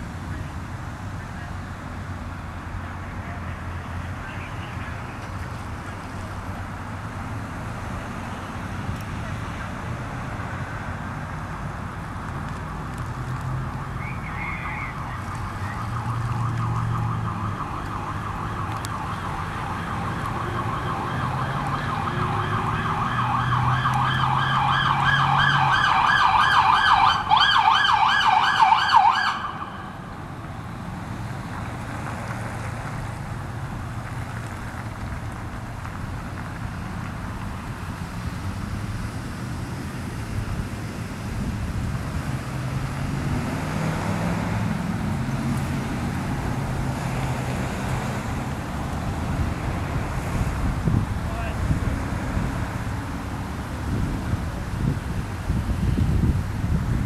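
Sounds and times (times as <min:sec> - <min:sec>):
engines and road noise: 0:00.0 - 0:57.0
siren warbling yelp: 0:13.8 - 0:30.0
vehicle driving past: 0:36.7 - 0:55.0.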